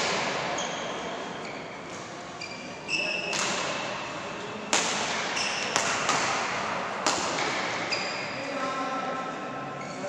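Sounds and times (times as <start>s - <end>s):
shoes squeaking on court: 0.0s - 4.6s, 5.3s - 6.1s, 7.4s - 8.6s
racket hitting shuttlecock: 3.2s - 4.0s, 4.7s - 8.0s.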